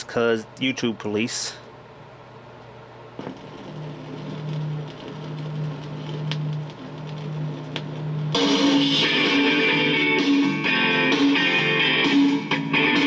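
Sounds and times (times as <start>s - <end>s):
record clicks: 3.2s - 8.4s
loud guitar music: 8.3s - 13.0s.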